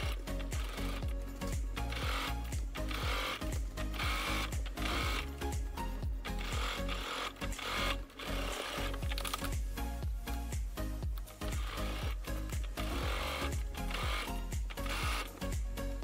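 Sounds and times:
background music with beat: 0:00.0 - 0:16.0
sewing machine stitching: 0:01.8 - 0:05.3, 0:06.3 - 0:09.0, 0:11.5 - 0:15.4.

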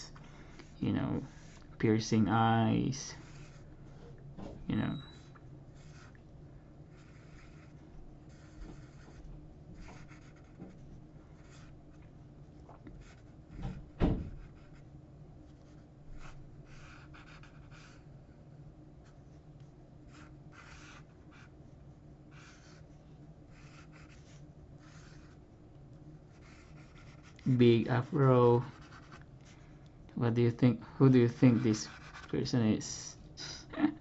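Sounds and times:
faint low hum: 0:00.0 - 0:34.0
pencil scratching on paper: 0:01.2 - 0:01.6, 0:03.2 - 0:03.7, 0:05.8 - 0:06.2, 0:06.9 - 0:11.8, 0:13.0 - 0:13.7, 0:14.4 - 0:14.9, 0:15.5 - 0:18.1, 0:20.1 - 0:22.9, 0:23.5 - 0:25.4, 0:26.3 - 0:29.6, 0:31.0 - 0:32.5
dull thump: 0:13.6 - 0:14.4.

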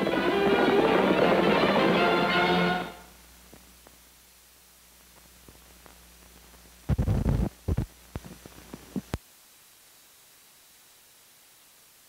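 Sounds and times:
faint hiss: 0:00.0 - 0:12.0
film crackles and pops: 0:03.3 - 0:09.3.

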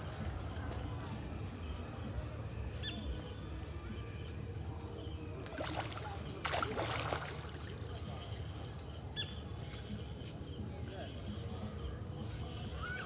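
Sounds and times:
fish splashing and thrashing in water: 0:05.5 - 0:07.8.

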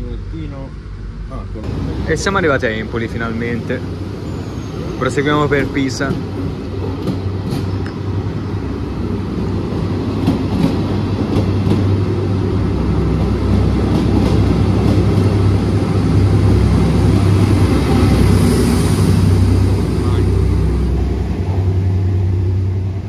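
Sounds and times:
train rumble and hum: 0:00.0 - 0:23.0.

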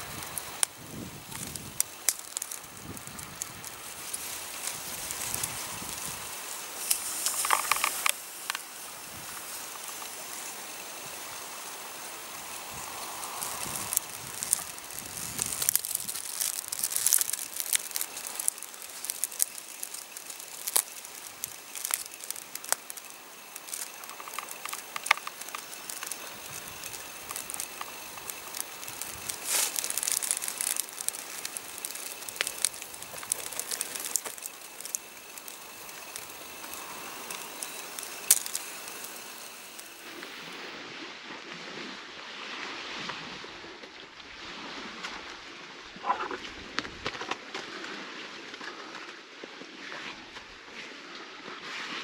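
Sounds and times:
footsteps crunching on dry ground: 0:00.0 - 0:11.2, 0:11.8 - 0:40.5
rustling: 0:00.0 - 0:40.2.

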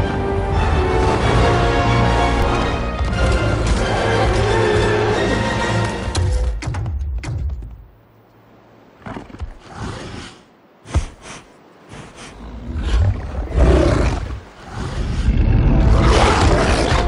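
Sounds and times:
giant wolf growling and snarling: 0:12.3 - 0:17.0.

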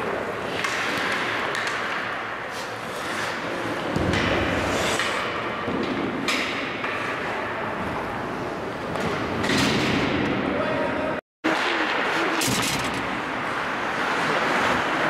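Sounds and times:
skates scraping on ice: 0:00.2 - 0:05.4, 0:11.5 - 0:15.0.

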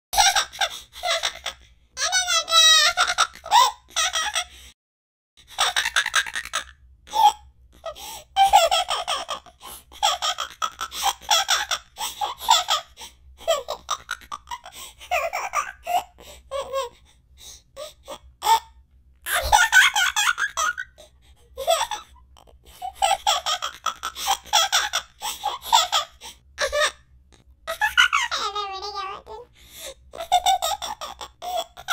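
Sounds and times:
cartoon character laughing: 0:19.3 - 0:21.0.

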